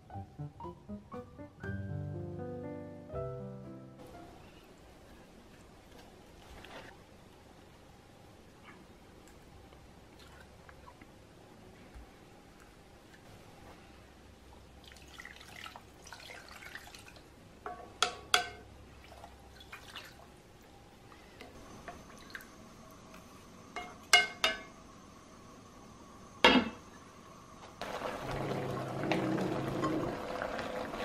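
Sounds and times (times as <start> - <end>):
kitchenware clinking: 17.7 - 18.7, 23.8 - 24.7.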